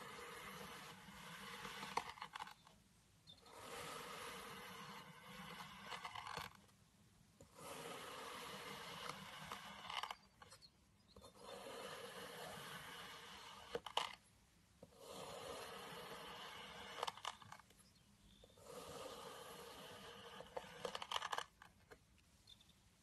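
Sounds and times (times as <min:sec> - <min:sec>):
knife scraping through sand: 0:00.0 - 0:02.6, 0:07.5 - 0:10.2, 0:11.3 - 0:14.1, 0:15.0 - 0:17.5, 0:18.6 - 0:21.5.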